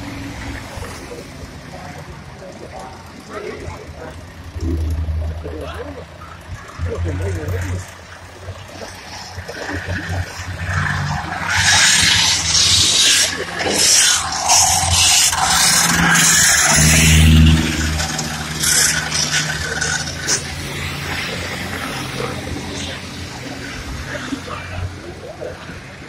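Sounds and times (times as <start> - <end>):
stock car engines passing: 0.0 - 26.0
tyre hiss on wet track: 10.7 - 17.2.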